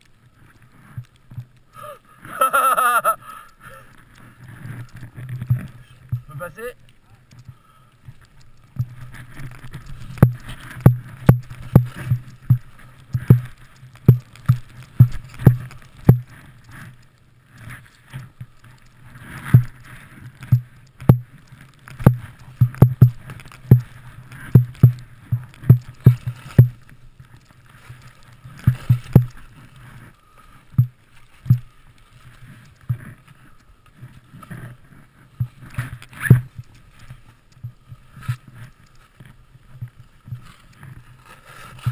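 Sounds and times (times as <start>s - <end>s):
skis thumping through powder: 8.2s - 17.0s.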